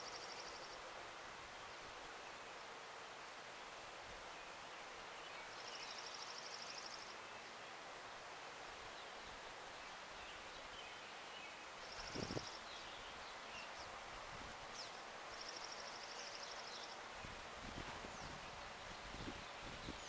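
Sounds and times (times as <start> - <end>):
faint bird chirps: 9.0 - 17.4.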